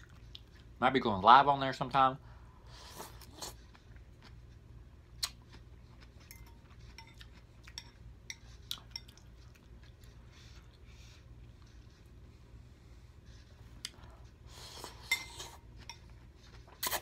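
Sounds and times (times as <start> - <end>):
low steady hum: 0.0 - 17.0
fork clinking against glass bowl: 6.3 - 9.2, 15.0 - 16.1.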